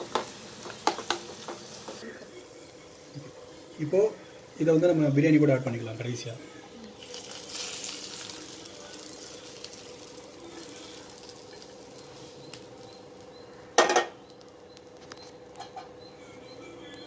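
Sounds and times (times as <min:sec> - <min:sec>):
loud kitchenware clatter: 0:13.8 - 0:14.2.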